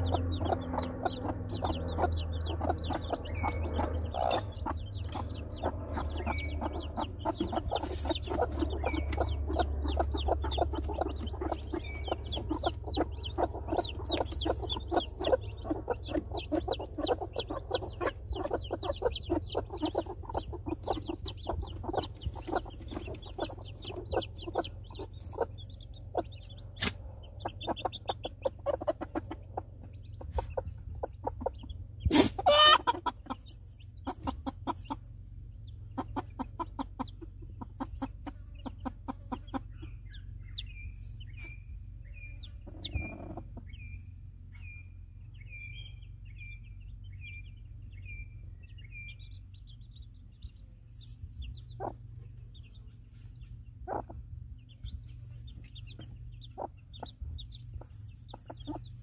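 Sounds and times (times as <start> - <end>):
hens clucking and growling: 0.0 - 40.4, 41.0 - 44.4
chicks peeping: 0.0 - 59.0.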